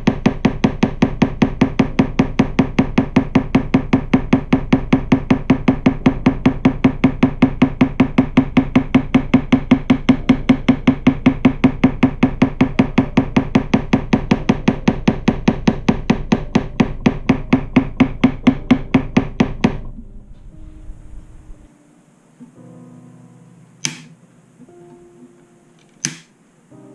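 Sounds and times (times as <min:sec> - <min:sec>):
small hammer tapping guitar frets: 0:23.8 - 0:24.2, 0:25.8 - 0:26.3.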